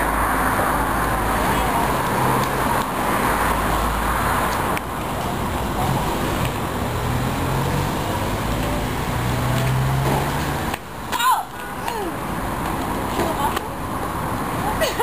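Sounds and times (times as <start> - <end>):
street traffic noise: 0.0 - 15.0.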